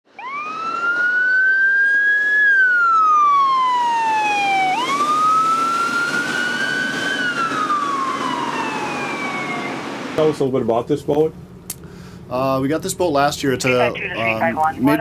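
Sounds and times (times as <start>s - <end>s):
emergency siren wailing: 0.1s - 10.2s.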